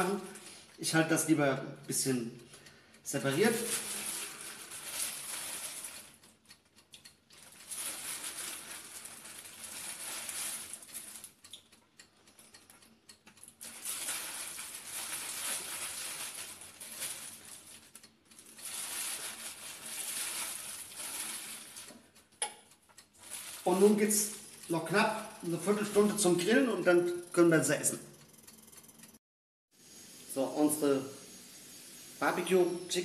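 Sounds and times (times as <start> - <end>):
plastic bag crinkling: 3.1 - 6.4, 7.4 - 11.6, 13.6 - 22.2, 23.2 - 27.1.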